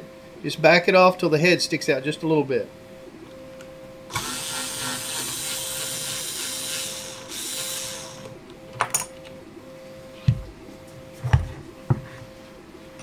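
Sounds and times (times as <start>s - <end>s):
electric screwdriver running: 4.1s - 8.4s.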